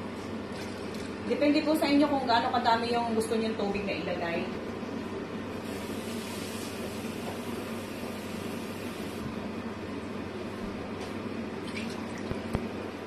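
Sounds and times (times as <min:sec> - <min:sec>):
gas burner hissing: 0:05.5 - 0:09.3.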